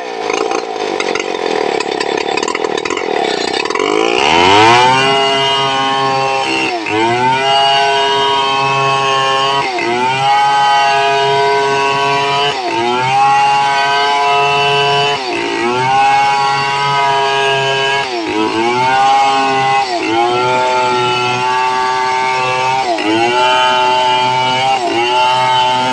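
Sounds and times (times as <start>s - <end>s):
chainsaw cutting timber: 0.0s - 25.9s.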